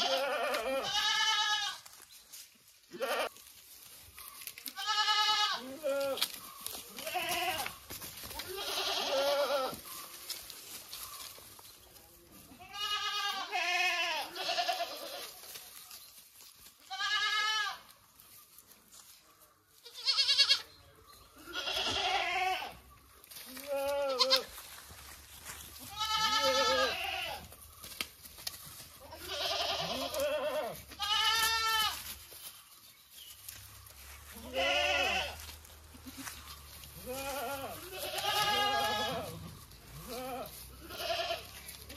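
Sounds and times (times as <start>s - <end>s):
goats bleating: 0.0s - 1.9s, 2.8s - 3.4s, 4.6s - 10.4s, 12.4s - 15.4s, 16.8s - 17.9s, 19.8s - 20.7s, 21.4s - 24.8s, 25.8s - 27.5s, 29.0s - 32.1s, 34.3s - 41.9s.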